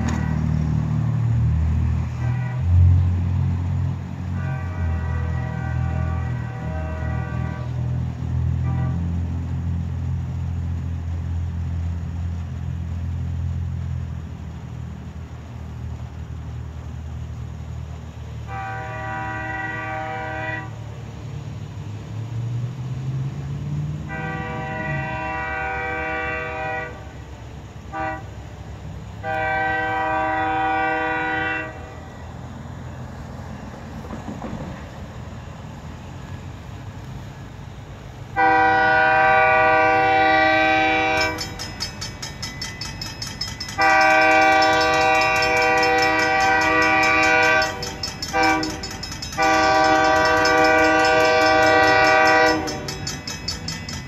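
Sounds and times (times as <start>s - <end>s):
locomotive air horn: 0.0s - 3.5s, 4.2s - 9.5s, 18.4s - 21.0s, 23.9s - 28.6s, 29.2s - 32.2s, 38.3s - 41.8s, 43.7s - 53.7s.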